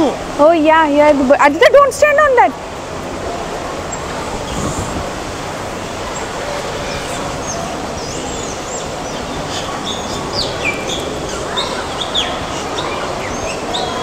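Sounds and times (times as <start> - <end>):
steady background hiss: 0.0 - 14.0
small birds chirping: 6.1 - 14.0.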